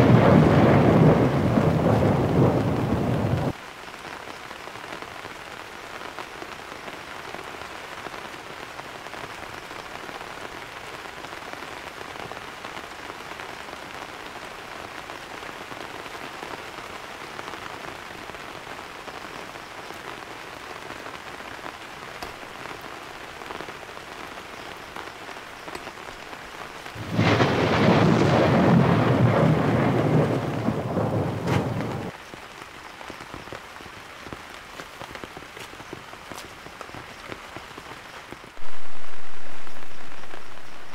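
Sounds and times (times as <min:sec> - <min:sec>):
thunder rumble: 0:00.0 - 0:03.6, 0:27.0 - 0:32.1
heavy rain falling: 0:00.0 - 0:40.9.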